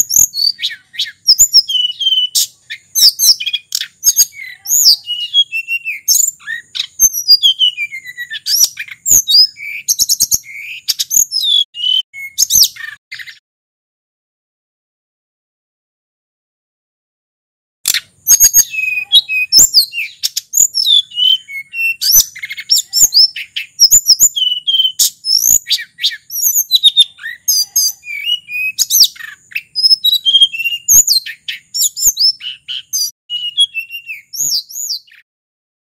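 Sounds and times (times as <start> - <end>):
bird singing whistled phrases: 0.0 - 13.4, 17.9 - 35.3.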